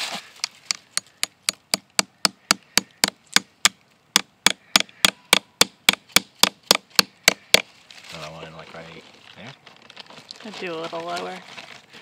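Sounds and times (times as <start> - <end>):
hammer striking a nail: 0.7 - 7.7.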